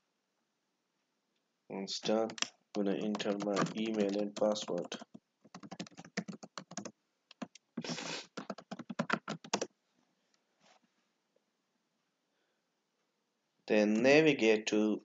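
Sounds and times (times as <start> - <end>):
typing on computer keyboard: 2.2 - 7.6, 8.3 - 9.7.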